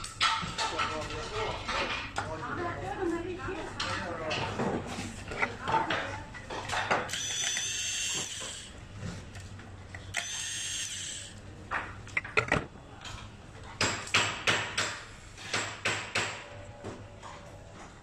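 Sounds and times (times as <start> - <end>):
electric screwdriver whining: 7.1 - 8.7, 10.1 - 11.3
plastic clicks and knocks: 11.7 - 12.7.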